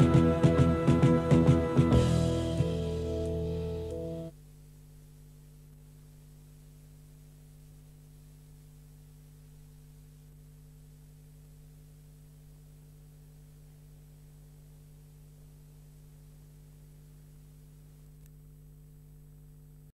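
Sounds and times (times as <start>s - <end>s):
electrical hum with hiss: 0.0s - 19.9s
faint click: 18.1s - 18.4s.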